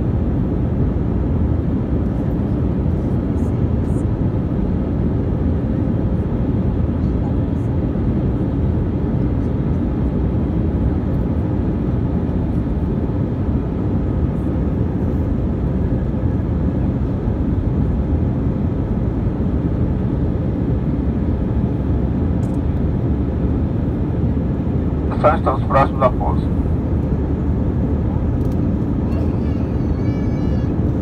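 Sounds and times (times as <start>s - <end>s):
airliner cabin engine rumble: 0.0s - 31.0s
airflow over fuselage: 7.7s - 31.0s.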